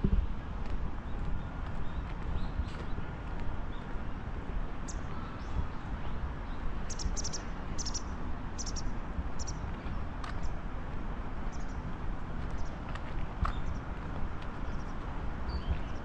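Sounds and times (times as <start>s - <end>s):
small bird chirping: 6.9s - 9.6s.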